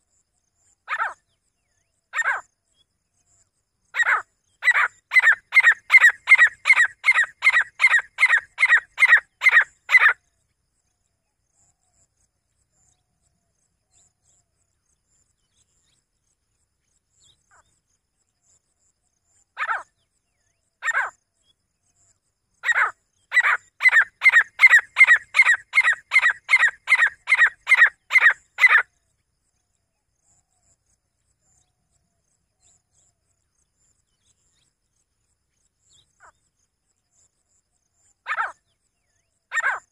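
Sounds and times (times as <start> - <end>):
francolin calling: 4.0 - 10.2, 22.6 - 28.9, 38.3 - 38.6, 39.5 - 39.9.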